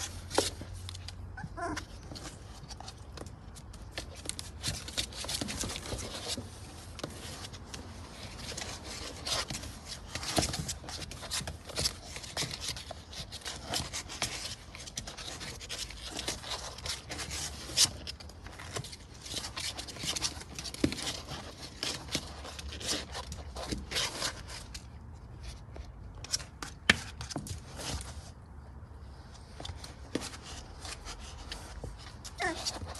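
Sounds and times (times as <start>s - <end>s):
puppy claws scratching cardboard: 0.0s - 32.9s.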